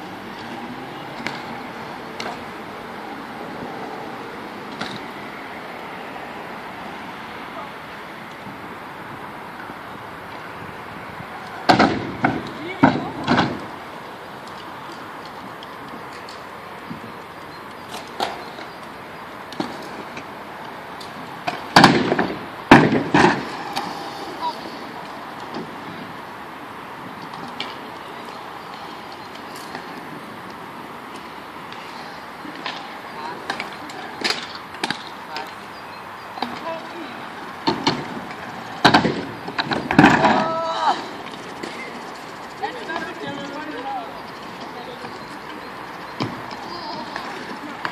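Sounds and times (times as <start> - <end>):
outdoor background hiss: 0.0 - 47.9
loud skateboard impacts: 11.6 - 13.8, 21.4 - 24.0, 37.6 - 40.9
scooter wheels rolling hiss: 23.1 - 35.8, 36.6 - 47.9
kick scooter clacking on concrete: 27.1 - 47.9
skateboard clacks on concrete: 37.6 - 47.9.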